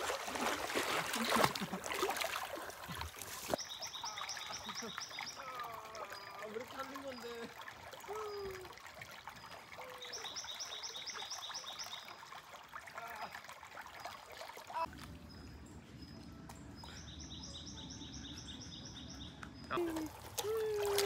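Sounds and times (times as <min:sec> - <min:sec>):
bird chirping: 0:15.2 - 0:19.9.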